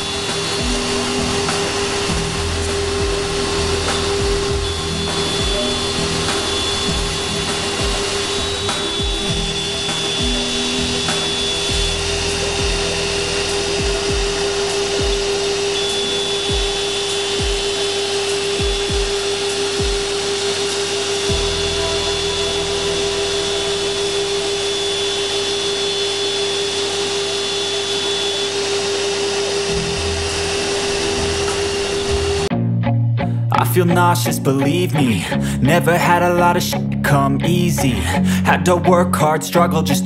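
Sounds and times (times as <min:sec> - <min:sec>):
dust extraction hiss: 0:00.0 - 0:32.5
router spindle cutting plastic: 0:00.0 - 0:32.5.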